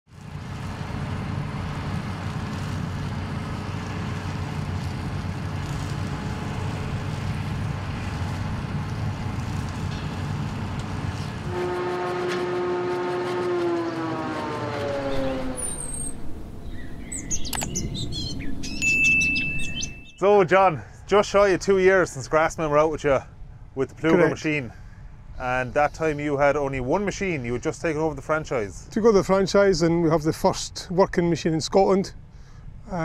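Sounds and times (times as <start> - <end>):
harvester engine drone: 0.1 - 19.9
engine note sliding down in pitch: 11.5 - 17.7
birds chirping: 15.0 - 20.2.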